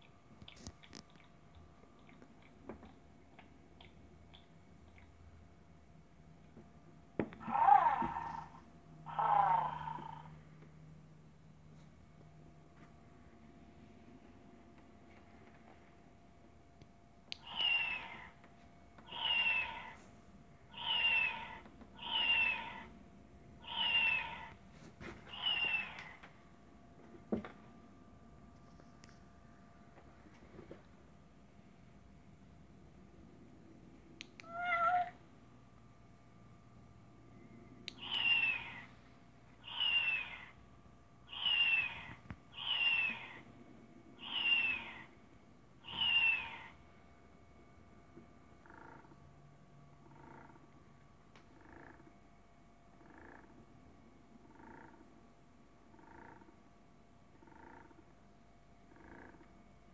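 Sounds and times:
toy kitten recorded meow: 7.4s - 10.3s, 17.4s - 18.3s, 19.1s - 20.0s, 20.7s - 22.8s, 23.6s - 24.5s, 25.3s - 26.1s, 34.4s - 35.2s, 38.0s - 38.9s, 39.6s - 40.5s, 41.3s - 43.4s, 44.2s - 45.1s, 45.8s - 46.7s
click: 34.2s - 34.5s.

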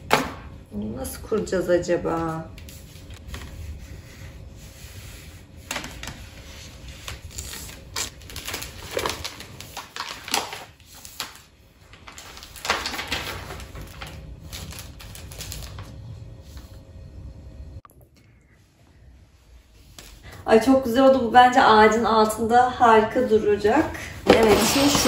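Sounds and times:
rustling and clicking while unpacking: 5.7s - 16.0s, 24.2s - 25.0s.

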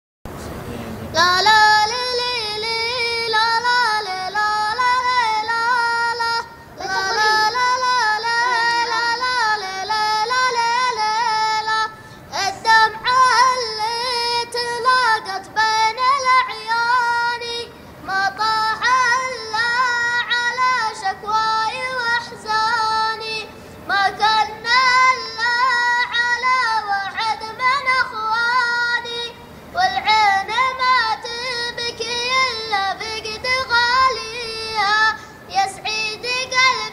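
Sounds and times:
child chanting a melody: 1.2s - 36.9s.

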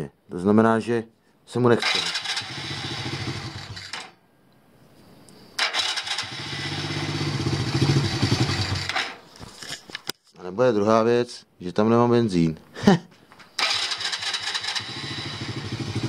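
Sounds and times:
small engine running and restarting: 1.8s - 4.1s, 5.6s - 9.1s, 13.6s - 16.0s.

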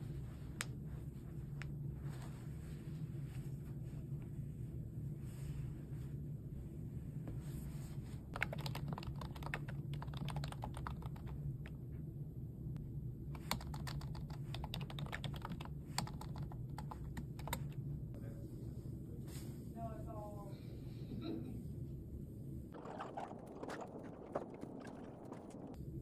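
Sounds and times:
steady low hum: 0.0s - 26.0s
typing on computer keyboard: 8.4s - 11.4s, 13.4s - 17.7s.

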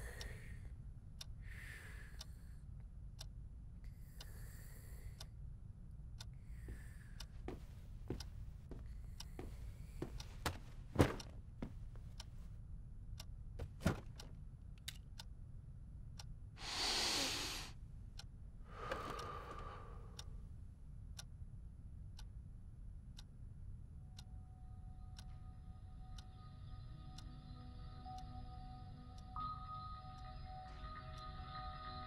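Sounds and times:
clock ticking: 6.0s - 12.3s, 18.2s - 20.3s, 24.2s - 26.3s.

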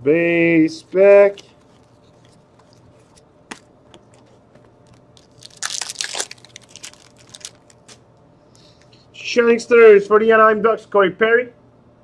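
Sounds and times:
crisp crinkling and rustling: 1.4s - 8.0s.

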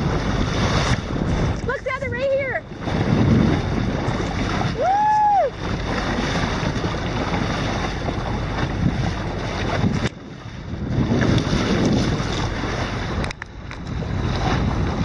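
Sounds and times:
boat water noise: 0.0s - 15.0s
wind buffeting microphone: 0.0s - 15.0s.

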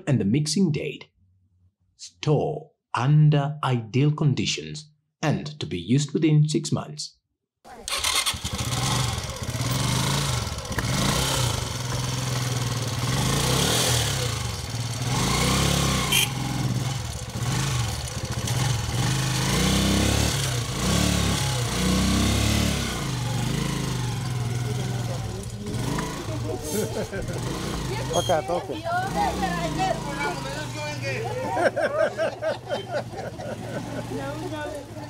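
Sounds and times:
small engine revving: 7.7s - 35.0s.

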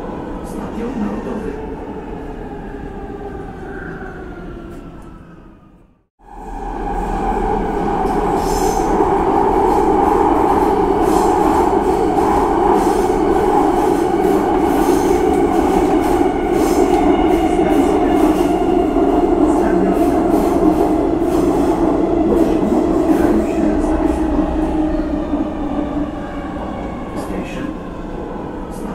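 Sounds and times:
subway train rumbling: 0.0s - 28.9s.

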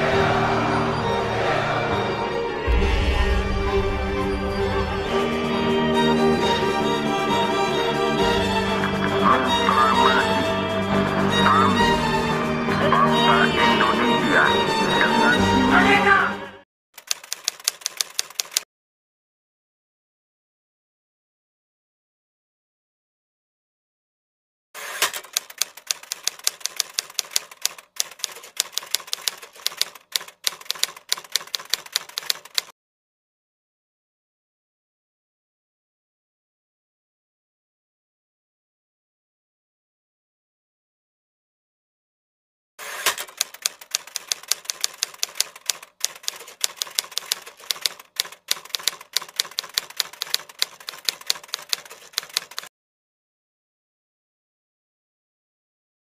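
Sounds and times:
typewriter key clacks: 17.0s - 18.6s, 25.0s - 32.7s, 43.0s - 52.7s.

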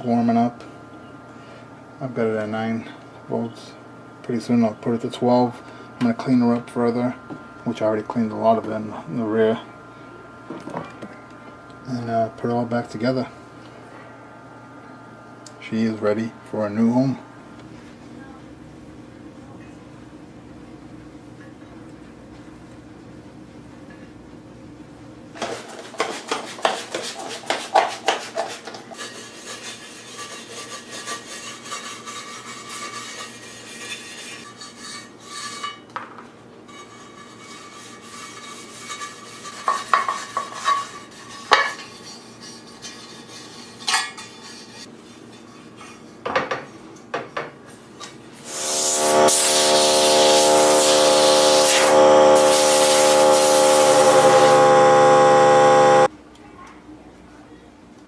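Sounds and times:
hum: 48.5s - 56.1s.

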